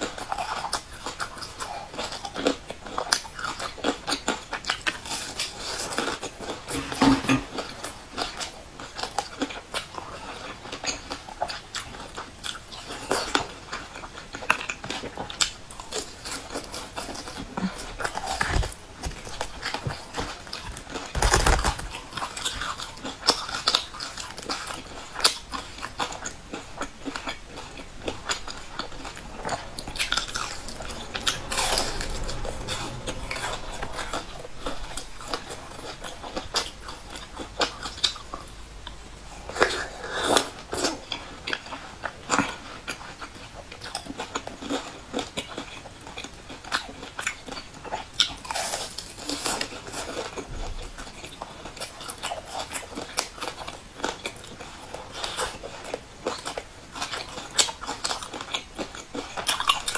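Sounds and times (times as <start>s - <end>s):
crunching and chewing: 0.0s - 59.9s.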